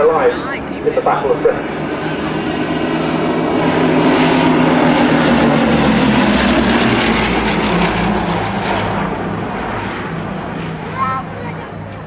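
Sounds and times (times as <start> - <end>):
aircraft engines droning overhead: 0.0 - 12.0.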